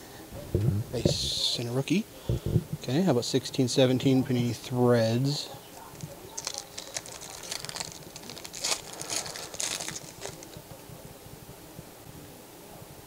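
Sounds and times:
foil wrapper crinkling: 5.8 - 10.8
cards rustling: 5.9 - 10.8.

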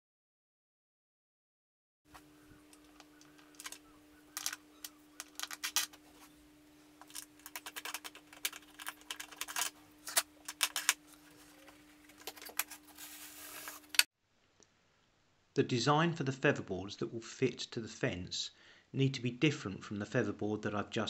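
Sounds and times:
clicks and rattles of wood and metal: 2.1 - 6.0, 7.0 - 12.8
faint steady hum: 2.1 - 21.0.

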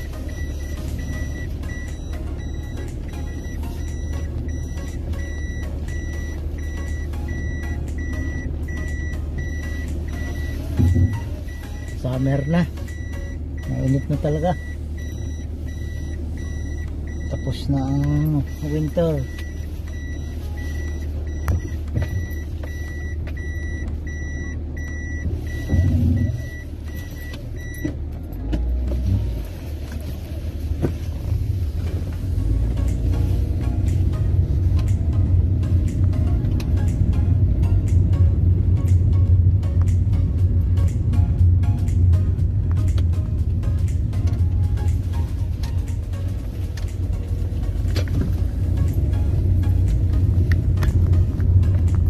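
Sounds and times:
high electronic warning beep: 0.0 - 27.9
car engine and road rumble: 0.0 - 52.0.

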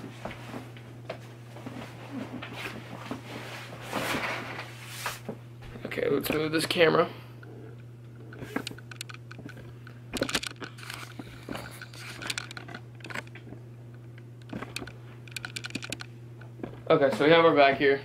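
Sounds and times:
camera handling clicks and rustles: 8.3 - 13.4, 14.0 - 16.1.

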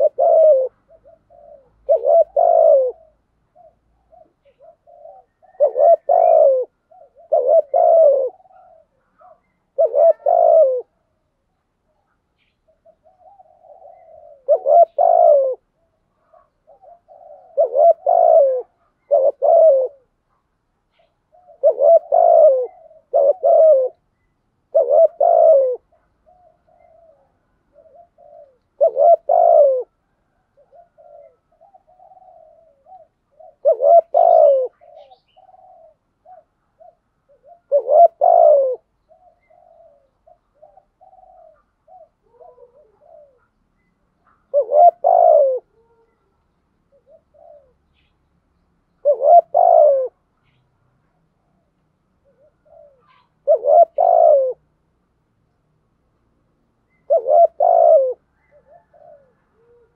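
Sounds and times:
dove cooing: 0.0 - 48.2, 48.9 - 50.6, 51.2 - 54.8, 56.9 - 59.9.

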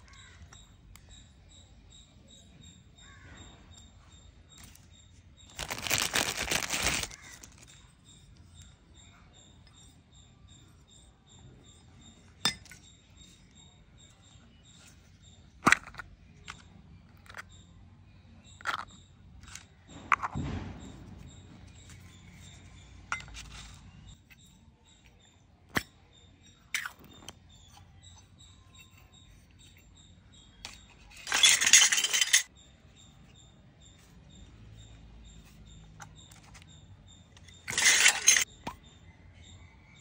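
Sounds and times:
toy kitchen pieces clicking: 5.5 - 9.2, 14.8 - 17.7, 18.5 - 20.4, 21.8 - 32.5, 37.3 - 38.8.

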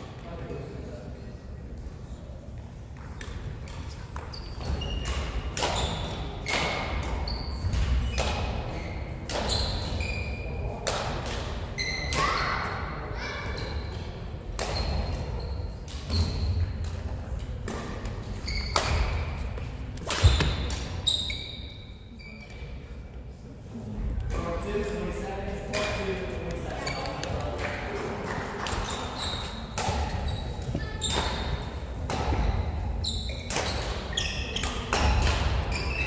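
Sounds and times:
shoes squeaking on court floor: 3.0 - 10.6, 14.6 - 16.8, 17.7 - 22.8, 26.1 - 36.0
racket striking shuttlecock: 20.0 - 21.0.

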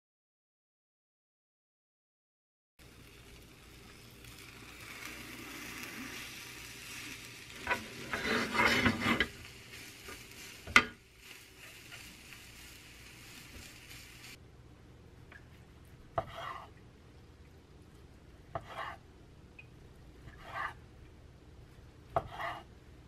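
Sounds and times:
omelette sizzling in a pan: 2.8 - 14.4.

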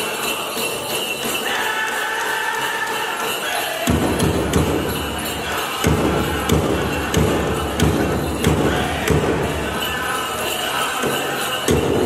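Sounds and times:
group singing: 0.0 - 12.0
large drum beating steadily: 3.9 - 10.3.

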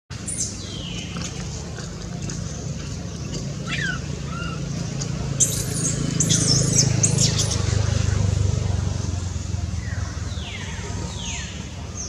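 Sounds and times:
animal squeaks and chirps: 3.6 - 4.6.

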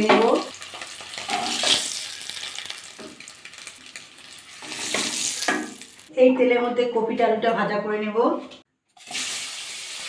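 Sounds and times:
hot oil sizzling: 0.0 - 6.1, 9.0 - 10.0.

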